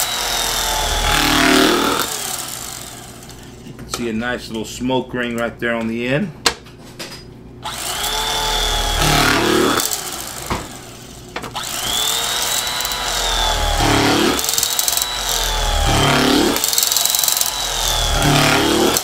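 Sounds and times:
electric carving knife whining: 0.0 - 3.6, 7.6 - 19.0.

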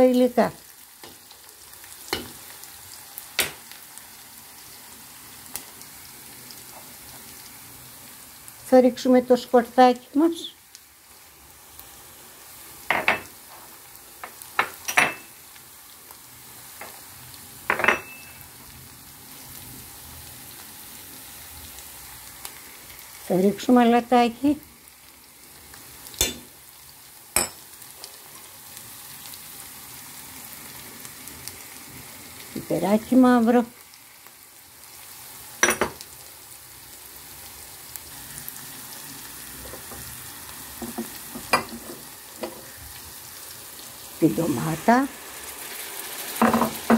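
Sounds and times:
onions sizzling in oil: 0.0 - 46.9
ringing clinks against pan: 17.8 - 18.4.

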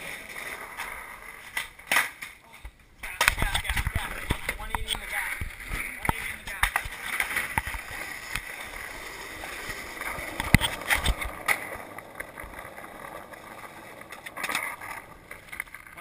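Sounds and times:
skateboard clacks: 0.0 - 16.0
skateboard wheels rolling on asphalt: 0.0 - 16.0.

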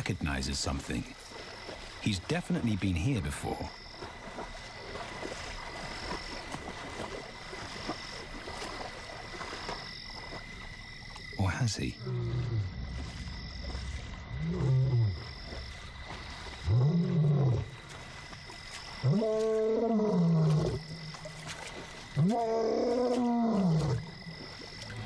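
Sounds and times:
lion roaring: 22.2 - 24.1.

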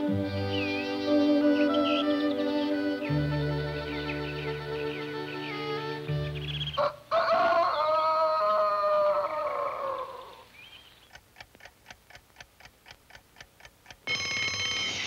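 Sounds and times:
alarm clock ticking: 11.0 - 15.0
alarm clock bell ringing: 14.0 - 15.0.

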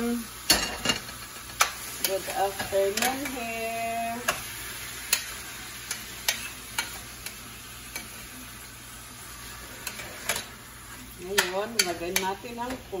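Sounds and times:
meat sizzling in a pan: 0.0 - 13.0
spoon clicking against pan: 5.0 - 8.1, 11.3 - 12.4.

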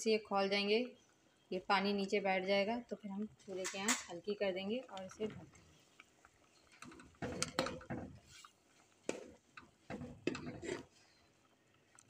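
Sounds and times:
metal spoon stirring in steel pot: 6.4 - 11.2.

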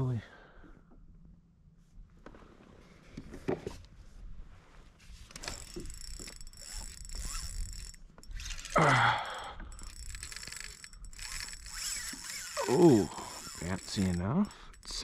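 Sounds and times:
fishing reel ticking and whirring: 5.3 - 15.0.

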